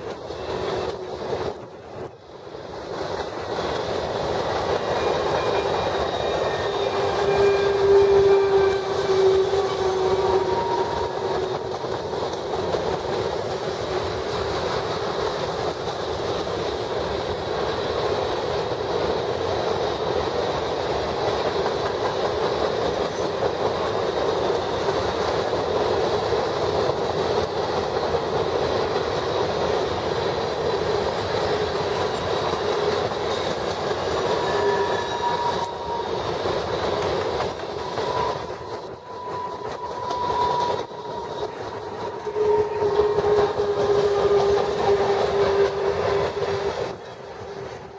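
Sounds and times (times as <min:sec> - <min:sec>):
train wheels rumbling and rattling: 0:00.0 - 0:47.9
wheels clacking over rail joints: 0:00.0 - 0:47.9
wheel squeals: 0:04.8 - 0:11.7, 0:31.8 - 0:36.4, 0:37.4 - 0:46.7.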